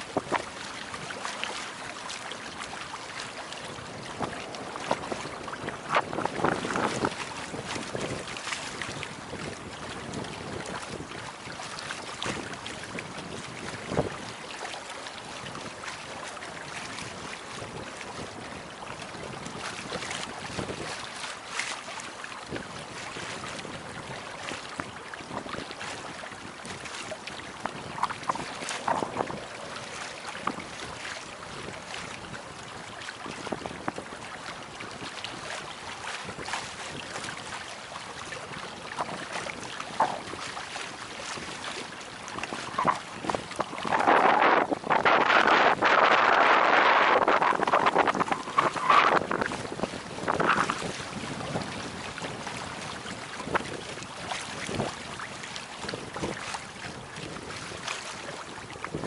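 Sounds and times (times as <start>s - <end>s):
water rushing along hull: 0.0s - 59.0s
wind on microphone: 0.0s - 59.0s.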